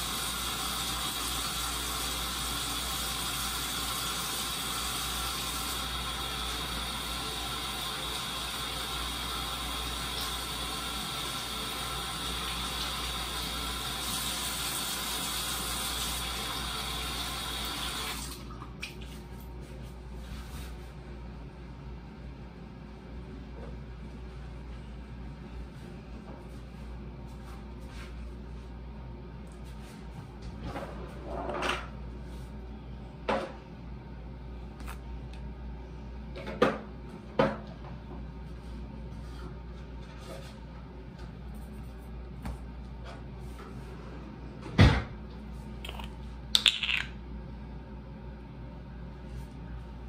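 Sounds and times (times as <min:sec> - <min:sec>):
items set down on countertop: 0:45.9 - 0:47.2.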